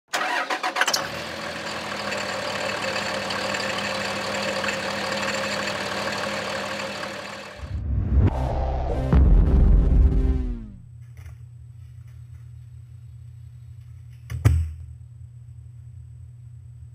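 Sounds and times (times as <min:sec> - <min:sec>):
diesel engine idling: 0:01.0 - 0:07.7
deep low boom: 0:07.6 - 0:10.9.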